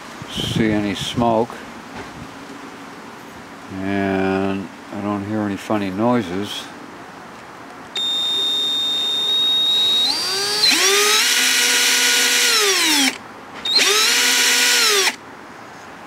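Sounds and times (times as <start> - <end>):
drill motor spinning: 8.0 - 15.2.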